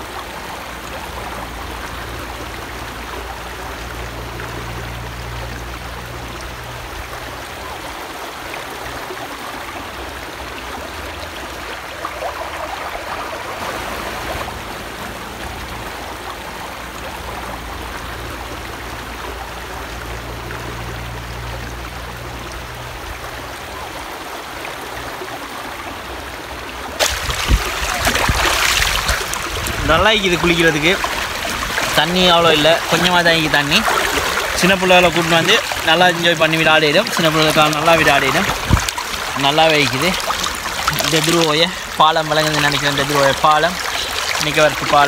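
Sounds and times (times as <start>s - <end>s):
river water rushing over rocks: 0.0s - 22.4s, 23.5s - 45.0s
water splashing onto a face: 27.0s - 45.0s.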